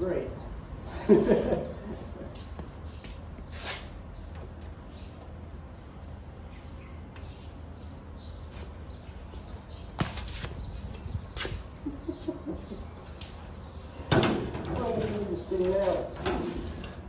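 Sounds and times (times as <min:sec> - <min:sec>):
low background hum: 0:00.0 - 0:17.0
small birds chirping: 0:00.0 - 0:17.0.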